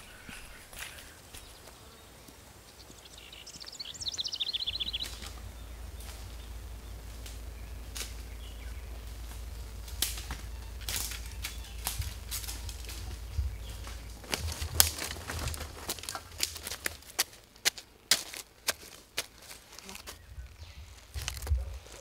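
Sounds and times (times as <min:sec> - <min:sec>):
songbird trill: 0:00.0 - 0:17.6, 0:18.6 - 0:22.0
low rumble: 0:04.6 - 0:16.7.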